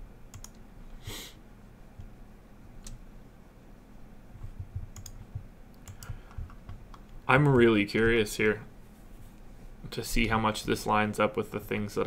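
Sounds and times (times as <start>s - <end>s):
low room hum: 0.0s - 12.0s
computer mouse clicks: 0.3s - 0.6s, 4.5s - 7.2s.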